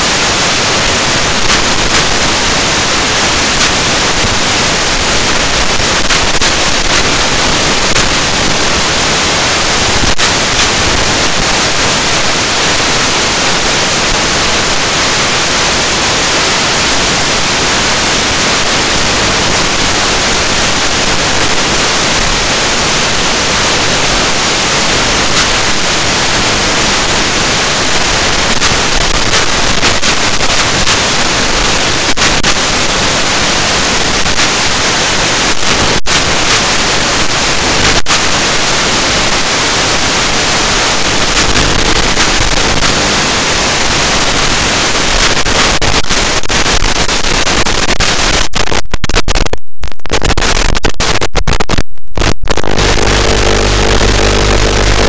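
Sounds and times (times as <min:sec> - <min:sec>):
static hiss: 0:00.0 - 0:55.0.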